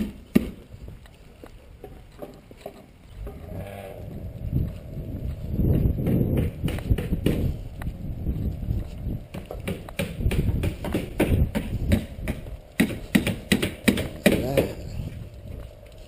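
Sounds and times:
footsteps on concrete: 0:00.0 - 0:16.0
low rumble: 0:03.2 - 0:09.6, 0:14.1 - 0:16.0.

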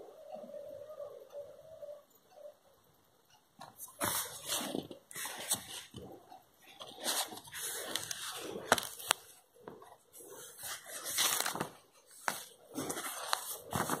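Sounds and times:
paper pages rustling: 0:04.0 - 0:06.1, 0:06.7 - 0:14.0.

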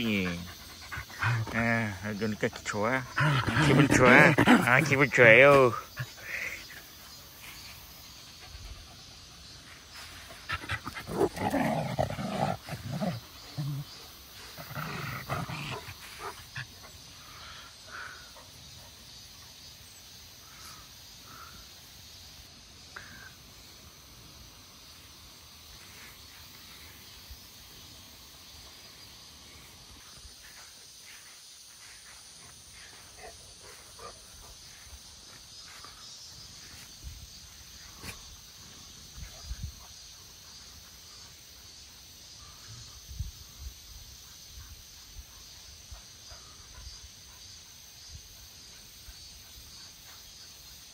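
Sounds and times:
cicadas droning: 0:00.0 - 0:50.9
dogs growling: 0:00.1 - 0:02.0, 0:02.9 - 0:06.5, 0:10.4 - 0:18.5.

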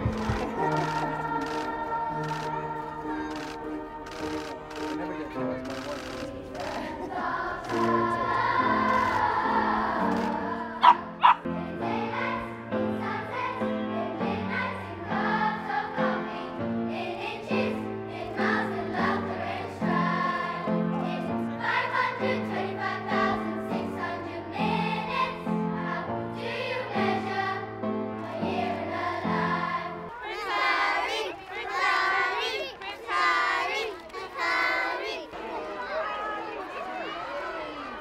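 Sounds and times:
children's choir singing: 0:00.0 - 0:38.0
children cheering and shouting: 0:30.1 - 0:38.0.

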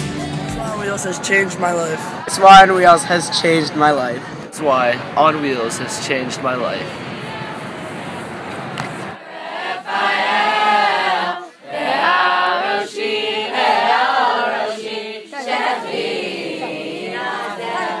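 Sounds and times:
group of voices singing: 0:05.1 - 0:18.0.

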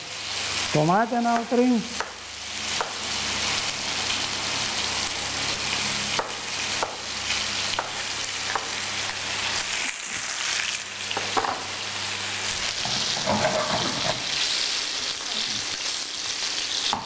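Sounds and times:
food sizzling in pans: 0:00.0 - 0:17.0
knife tapping on chopping board: 0:01.4 - 0:02.2.

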